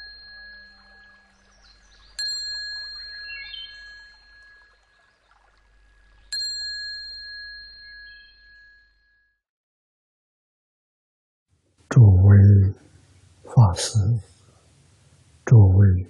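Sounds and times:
small metal bell ringing: 0.0 - 1.4, 2.2 - 5.0, 6.3 - 9.4.

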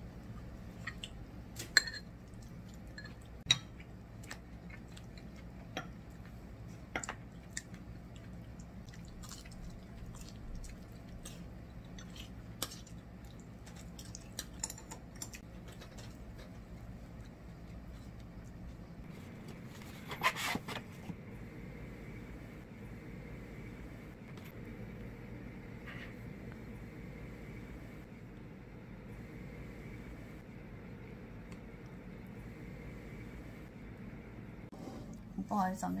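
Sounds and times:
low room hum: 0.0 - 36.0
chewing: 7.3 - 14.6.

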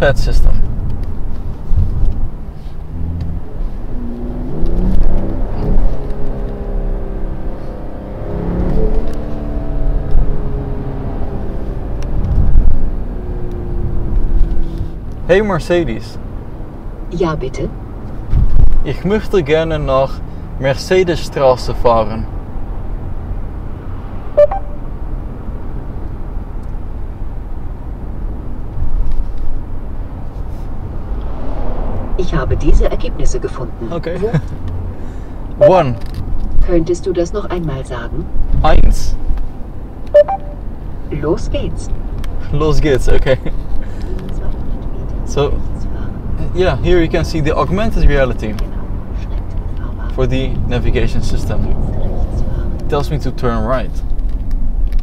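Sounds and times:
road and tyre rumble: 0.0 - 55.0
car engine revving: 1.6 - 15.3
short tone with click: 24.4 - 24.8, 40.2 - 40.6.

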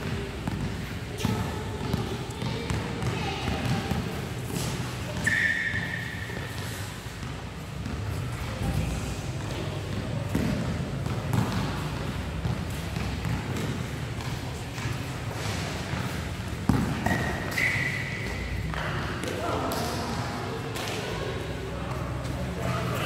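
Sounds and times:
basketball bouncing on hard court: 0.0 - 5.3, 7.2 - 8.8, 9.4 - 17.6
low hum of hall: 0.0 - 23.0.

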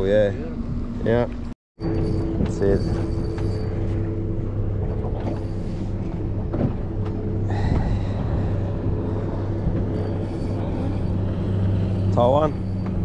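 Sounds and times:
boat motor running: 0.0 - 13.0
wind: 0.0 - 13.0.

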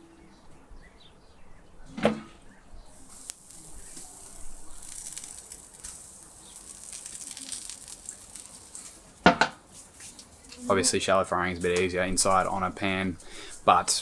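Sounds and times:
squid frying in oil: 3.0 - 9.3.

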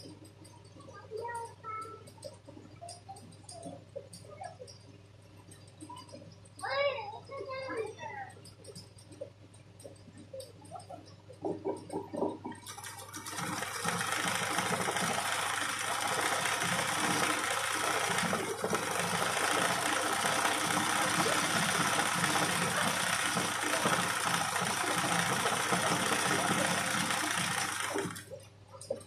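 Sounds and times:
machine running with rumble: 13.2 - 28.3.

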